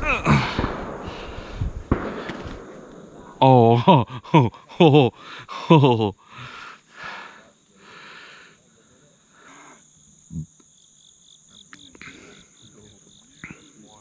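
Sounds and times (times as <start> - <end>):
insects droning: 0.0 - 14.0
pulsing insect call: 0.0 - 14.0
man's voice: 3.4 - 6.2.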